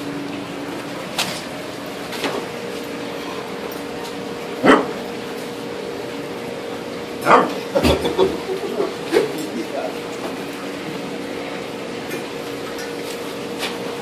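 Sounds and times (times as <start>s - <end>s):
steady background hum: 0.0s - 14.0s
dog barking sharply: 4.6s - 5.0s, 7.2s - 7.6s.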